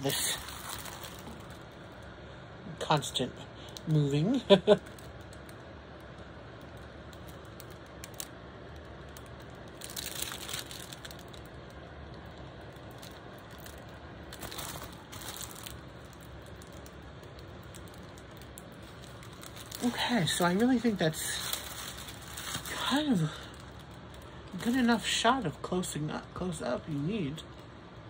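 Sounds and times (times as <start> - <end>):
plastic film crinkling: 0.0 - 2.2, 3.6 - 26.0
low steady hiss: 0.0 - 28.0.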